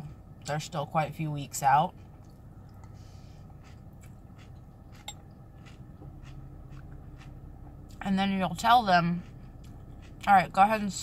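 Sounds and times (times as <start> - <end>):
low steady hum: 0.0 - 11.0
chewing crunchy cereal: 2.0 - 10.6.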